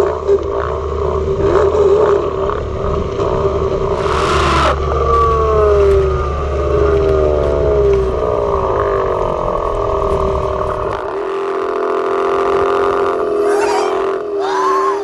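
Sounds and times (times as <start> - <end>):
engine revving with hiss: 3.3 - 10.9.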